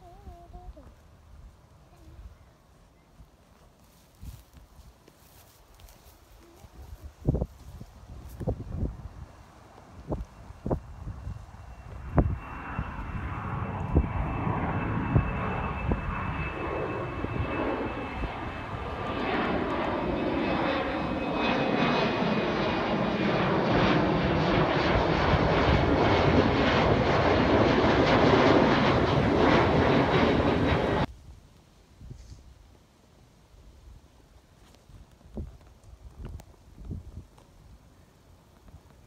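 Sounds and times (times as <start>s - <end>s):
jet airliner engines: 6.4s - 31.1s.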